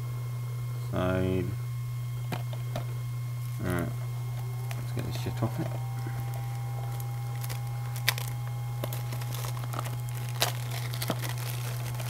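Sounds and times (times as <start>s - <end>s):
steady low hum: 0.0s - 12.0s
cellophane snapping: 2.3s - 12.0s
cellophane crinkling: 3.4s - 12.0s.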